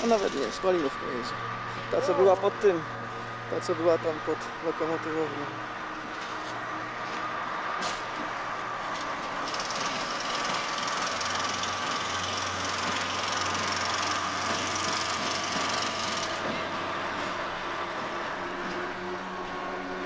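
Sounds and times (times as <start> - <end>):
diesel locomotive engine droning: 0.0 - 20.0.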